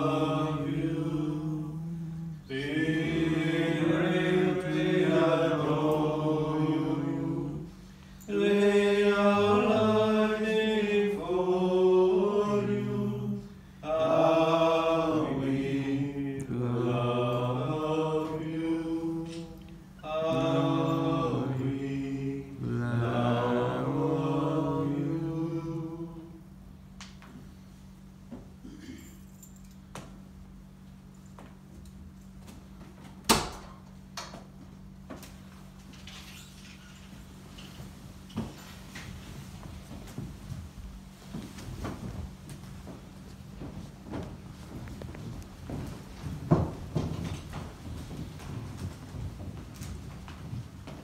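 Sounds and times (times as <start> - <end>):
voices singing slow chant: 0.0 - 26.6.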